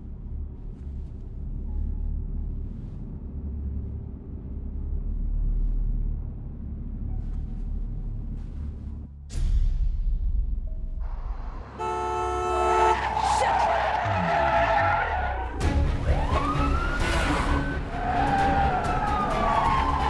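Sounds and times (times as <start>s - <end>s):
steady low rumble: 0.0s - 11.8s
car engines running hard: 11.4s - 20.0s
tyres squealing: 12.6s - 20.0s.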